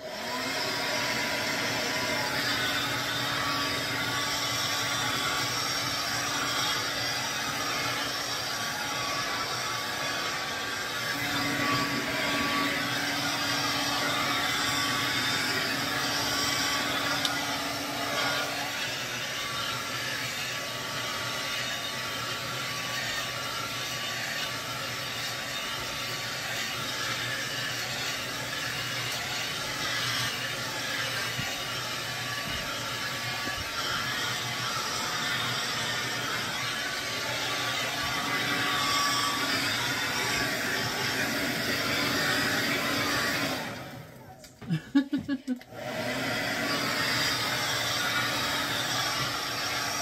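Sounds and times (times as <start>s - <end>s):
hair dryer blowing: 0.0s - 50.0s.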